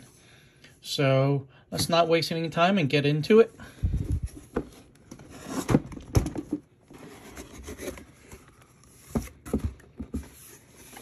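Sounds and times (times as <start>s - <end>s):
cardboard rubbing and scraping: 6.9s - 11.0s.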